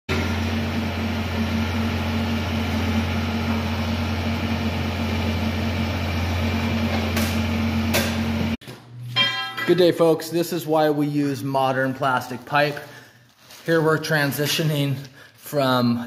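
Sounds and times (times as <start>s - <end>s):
excavator engine running: 0.1s - 8.6s.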